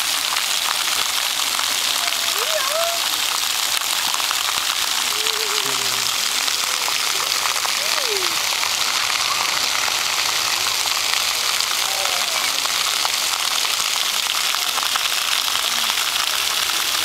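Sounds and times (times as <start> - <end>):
water jets pattering on pavement: 0.0 - 17.0.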